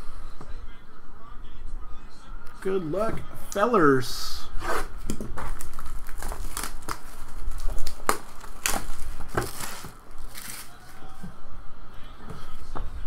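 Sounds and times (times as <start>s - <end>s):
box handling: 5.4s - 10.7s
wrapper tearing and crumpling: 5.4s - 10.8s.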